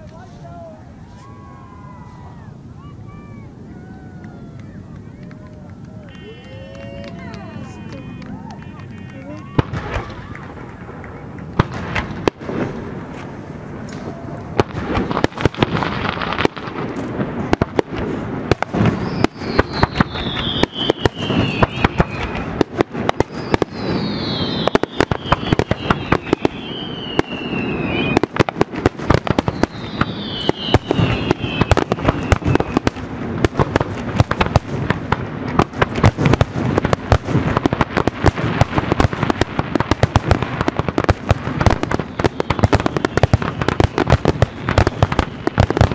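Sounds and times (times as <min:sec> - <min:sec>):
fireworks bangs and crackling: 0:00.0 - 0:45.9
falling firework whistles: 0:01.0 - 0:10.4, 0:11.9 - 0:33.0, 0:41.0 - 0:45.9.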